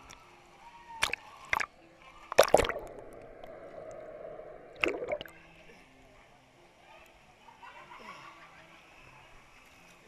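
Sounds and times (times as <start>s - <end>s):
muffled underwater gurgle: 1.0s - 5.5s
water splashing: 1.0s - 5.6s.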